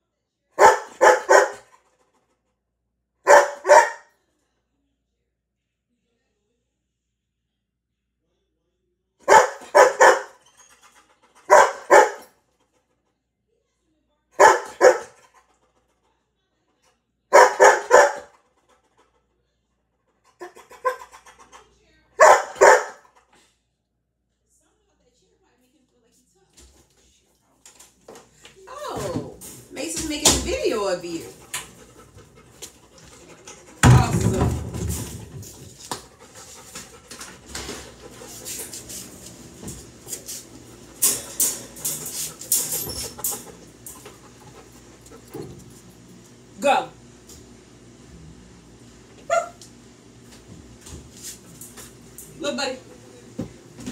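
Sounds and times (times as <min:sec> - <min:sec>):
dog barking: 0:00.6 - 0:01.7, 0:03.2 - 0:04.1, 0:09.2 - 0:10.4, 0:11.4 - 0:12.3, 0:14.4 - 0:15.2, 0:17.3 - 0:18.4, 0:20.4 - 0:21.2, 0:22.2 - 0:23.2, 0:49.2 - 0:49.6
dog panting: 0:09.3 - 0:13.0, 0:17.4 - 0:19.4, 0:20.0 - 0:23.5, 0:30.1 - 0:34.1, 0:34.9 - 0:46.0.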